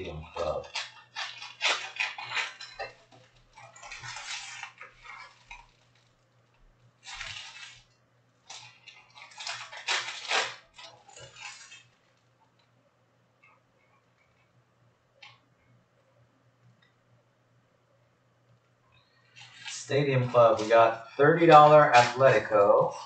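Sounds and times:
faint low hum: 0.0s - 23.0s
cards rustling and sliding: 19.4s - 22.6s.

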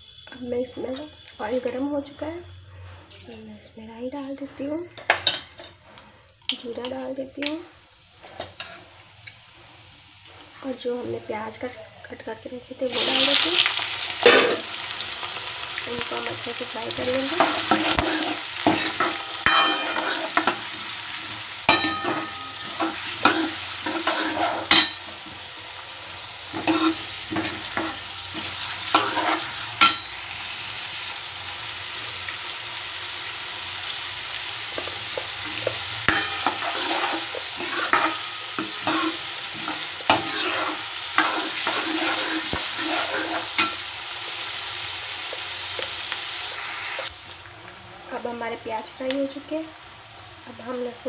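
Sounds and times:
onions sizzling in hot oil: 0.0s - 51.0s
ladle scraping a pan: 17.3s - 20.9s, 21.7s - 25.3s, 26.5s - 30.0s, 35.6s - 43.8s.

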